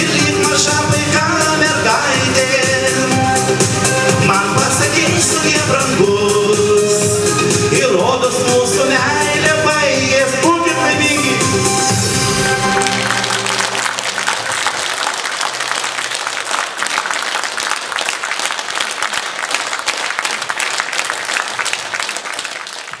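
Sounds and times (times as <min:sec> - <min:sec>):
band final chord: 0:10.6 - 0:14.6
audience applauding: 0:12.0 - 0:23.0.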